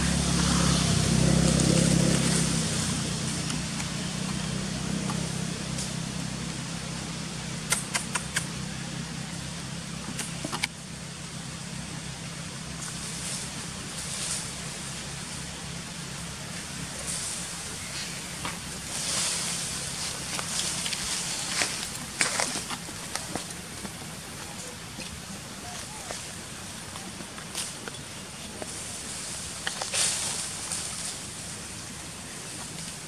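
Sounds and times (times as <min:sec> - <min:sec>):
outdoor hiss: 0:00.0 - 0:33.0
vehicle engine hum: 0:00.0 - 0:33.0
sharp clicks: 0:07.7 - 0:08.6.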